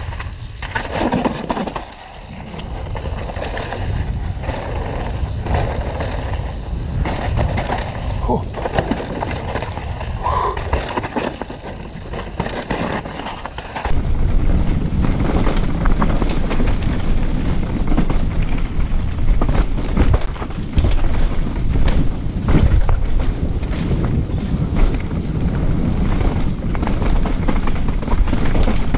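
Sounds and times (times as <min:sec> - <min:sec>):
bike rattling over ground: 0:00.0 - 0:28.9
bike tyres rumbling on trail: 0:00.0 - 0:28.9
wind buffeting microphone: 0:01.7 - 0:12.6.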